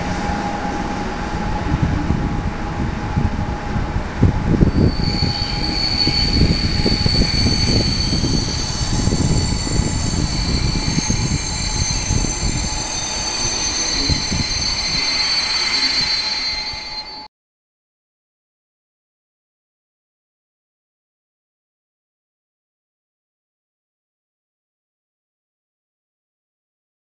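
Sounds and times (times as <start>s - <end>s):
train rumble with wheel knocks: 0.0s - 17.0s
high squeal of train brakes: 4.4s - 17.3s.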